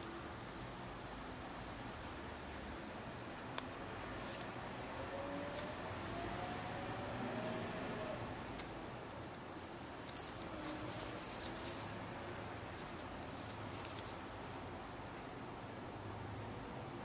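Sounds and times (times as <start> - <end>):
paper crinkling and rubbing: 5.4 - 7.2, 10.0 - 12.0, 12.7 - 14.8.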